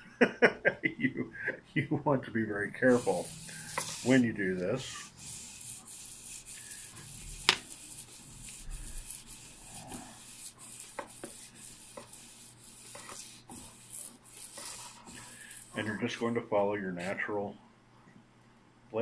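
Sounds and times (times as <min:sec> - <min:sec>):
blade scraping on sandpaper: 0:02.8 - 0:16.4.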